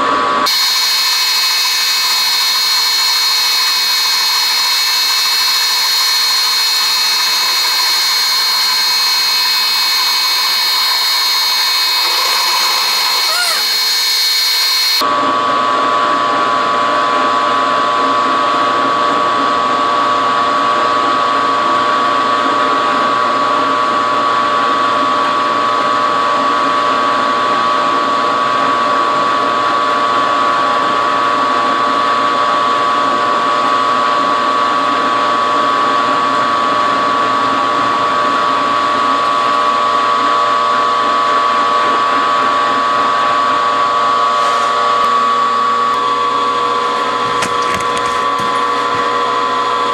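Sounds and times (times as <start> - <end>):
milling machine cutting steel: 0.5 - 15.0.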